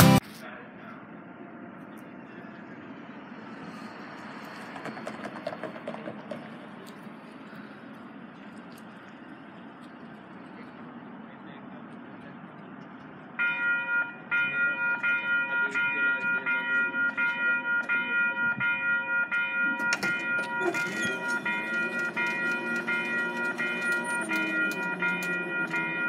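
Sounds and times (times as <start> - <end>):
level crossing warning bell: 13.4 - 26.0.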